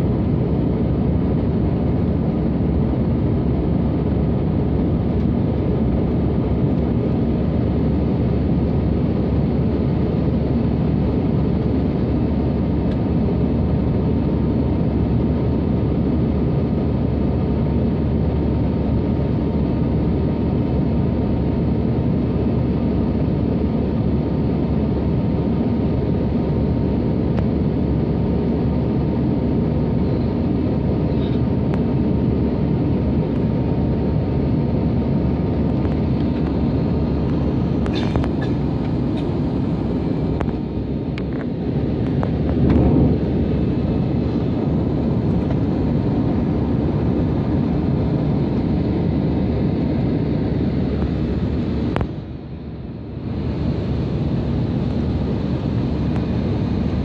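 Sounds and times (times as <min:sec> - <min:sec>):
aircraft cabin engine roar: 0:00.0 - 0:57.0
faint steady whine: 0:00.0 - 0:57.0.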